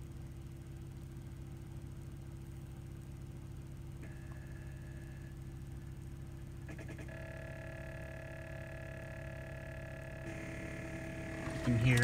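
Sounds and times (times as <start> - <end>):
constant low hum: 0.0 - 12.0
steady electric buzz: 3.8 - 12.0.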